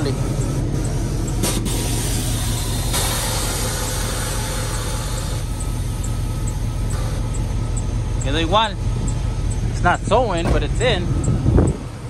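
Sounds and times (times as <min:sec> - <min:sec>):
pickup engine idling: 0:00.0 - 0:12.0
hiss: 0:01.4 - 0:05.4.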